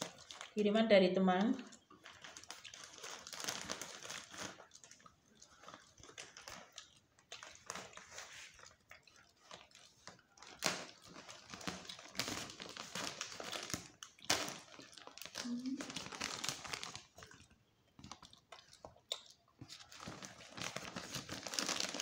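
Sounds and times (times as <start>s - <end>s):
plastic mailer bag rustling: 2.0s - 4.6s, 19.8s - 22.0s.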